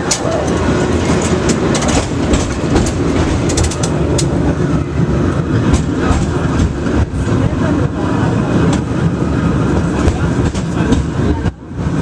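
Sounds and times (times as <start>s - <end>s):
cable car rumble and rattle: 0.0s - 12.0s.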